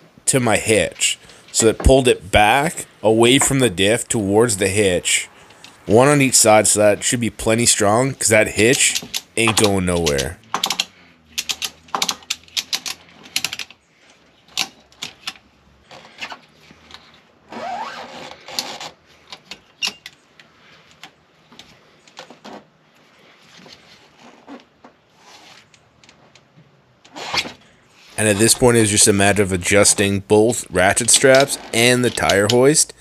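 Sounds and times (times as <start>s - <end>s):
ratchet strap clicking: 8.7s - 13.8s.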